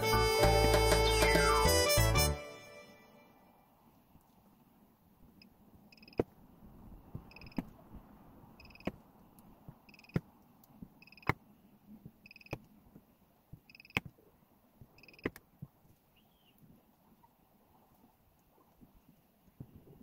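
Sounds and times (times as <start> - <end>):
two-tone beep: 7.3 - 7.6, 8.6 - 8.9.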